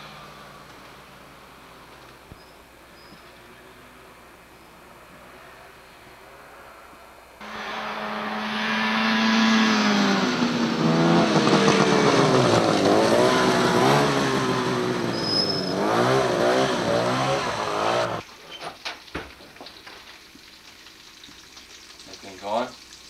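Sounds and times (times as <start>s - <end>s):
snowmobile engine revving: 7.4s - 18.2s.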